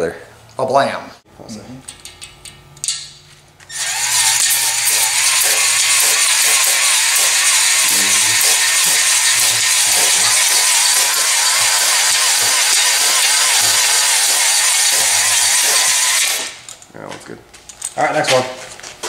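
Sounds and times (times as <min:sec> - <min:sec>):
drill spinning cylinder hone: 0:03.7 - 0:16.6
aerosol can spraying: 0:03.8 - 0:16.6.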